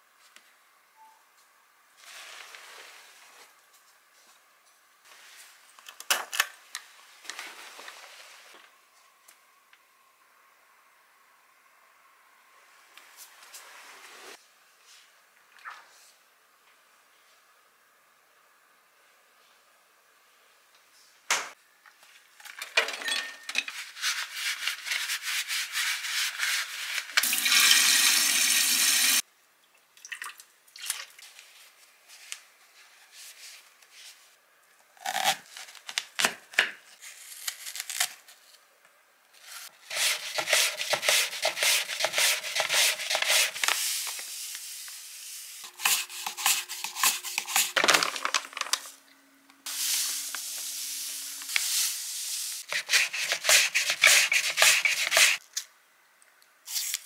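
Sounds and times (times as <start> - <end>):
apple scraping across mandoline slicer: 39.5 - 43.6, 52.7 - 55.4
steady hiss: 49.7 - 52.6.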